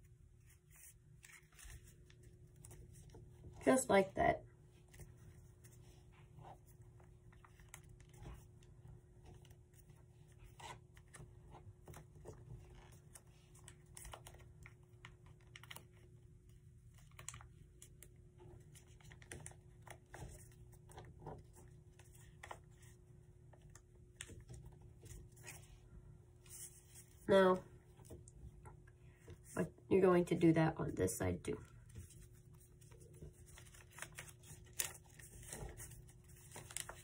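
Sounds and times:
low steady hum: 0:00.0 - 0:37.0
paper folding and crinkling: 0:00.4 - 0:03.8, 0:04.8 - 0:25.8, 0:31.7 - 0:37.0.

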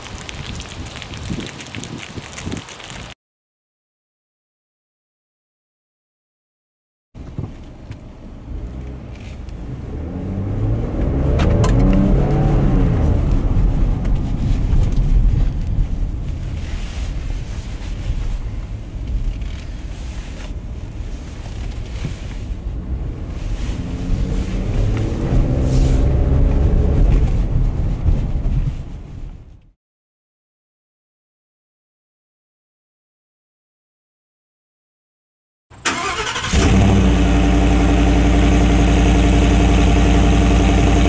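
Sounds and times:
car engine accelerating: 0:07.8 - 0:15.0, 0:21.2 - 0:27.9, 0:35.8 - 0:41.0.

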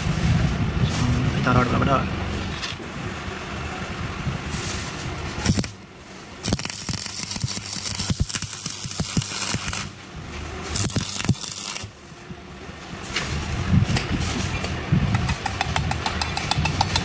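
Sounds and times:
welding arc crackling and hissing: 0:04.5 - 0:12.1.

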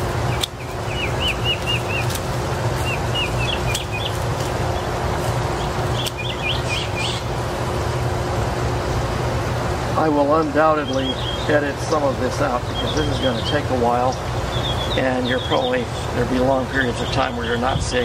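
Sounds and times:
steady low rumble: 0:00.0 - 0:18.0
small bird chirping: 0:00.3 - 0:04.9, 0:05.6 - 0:07.3, 0:10.4 - 0:11.7, 0:12.6 - 0:16.1
hand pruners snipping: 0:00.4 - 0:00.6, 0:01.4 - 0:05.4, 0:06.0 - 0:06.2.

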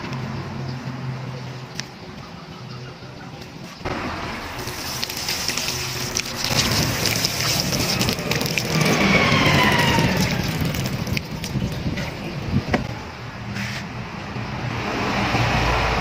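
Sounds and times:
passing vehicle engine: 0:03.8 - 0:16.0
hose water splashing: 0:04.3 - 0:12.6.

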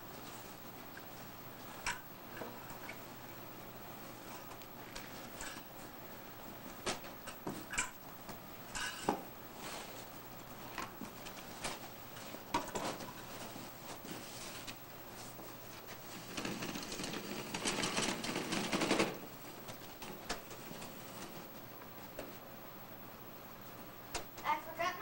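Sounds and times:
rapid clattering rattle: 0:16.0 - 0:19.4.

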